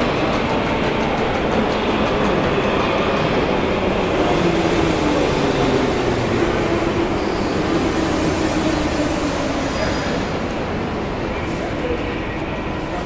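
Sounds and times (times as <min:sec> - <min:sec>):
train rumbling past: 0:00.0 - 0:13.0.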